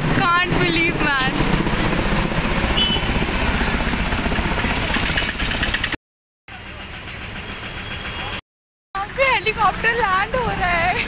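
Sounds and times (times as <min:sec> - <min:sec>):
helicopter rotor and engine: 0:00.0 - 0:06.0
street noise: 0:00.0 - 0:08.4, 0:09.0 - 0:11.0.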